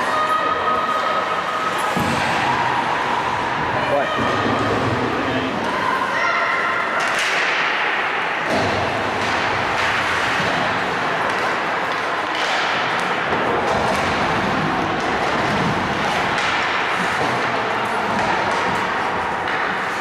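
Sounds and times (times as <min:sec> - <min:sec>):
players' voices: 0:00.0 - 0:20.0
hockey sticks and puck knocking: 0:07.0 - 0:20.0
skates scraping on ice: 0:08.7 - 0:20.0.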